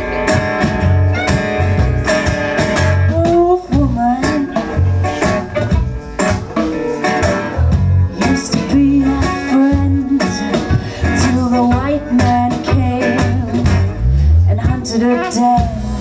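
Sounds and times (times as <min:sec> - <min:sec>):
acoustic guitar: 0:00.0 - 0:16.0
electric bass: 0:00.0 - 0:16.0
percussion beats: 0:00.0 - 0:16.0.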